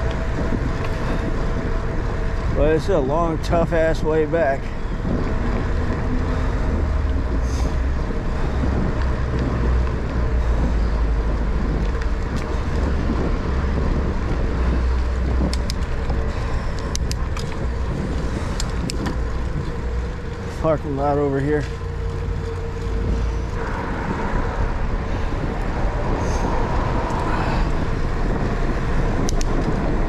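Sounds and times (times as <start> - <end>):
bicycle tyre noise on asphalt: 0.0 - 30.0
wind rumble on microphone: 0.0 - 30.0
sharp clicks: 15.5 - 16.1.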